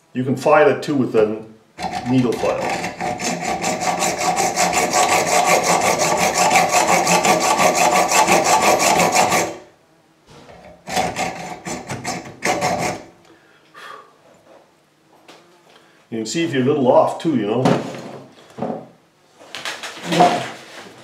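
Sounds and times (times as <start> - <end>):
hacksaw cutting metal: 1.8 - 9.6, 10.6 - 13.1.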